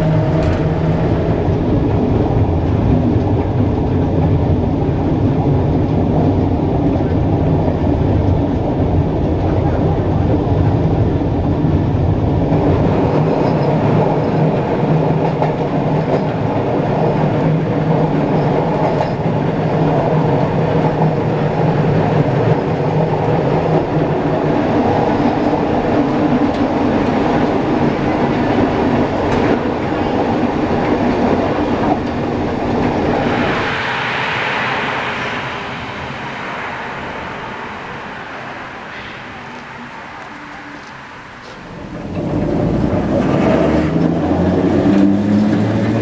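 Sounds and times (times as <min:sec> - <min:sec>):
tram wheels rumbling on rail: 0:00.0 - 0:46.0
hiss: 0:31.5 - 0:42.1
droning hum: 0:31.5 - 0:42.9.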